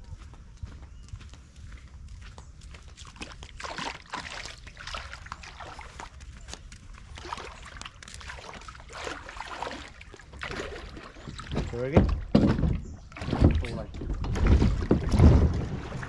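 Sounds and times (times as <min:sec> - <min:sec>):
water splashing around kayak: 0:03.0 - 0:16.0.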